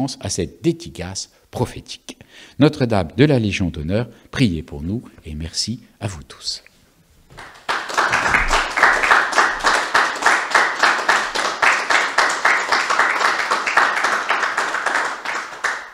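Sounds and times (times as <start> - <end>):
people clapping: 7.3 - 15.9.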